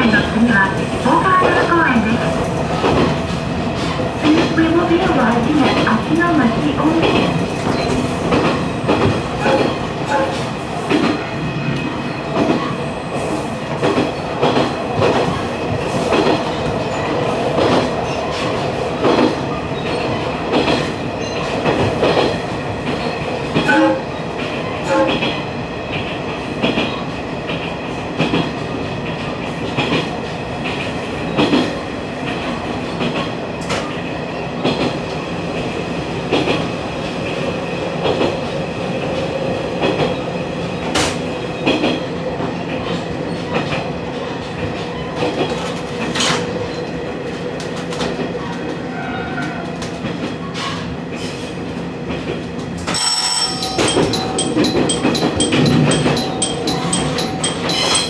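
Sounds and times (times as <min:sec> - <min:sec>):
railcar running hum: 0:00.0 - 0:58.0
train wheels clacking over rail joints: 0:52.1 - 0:58.0.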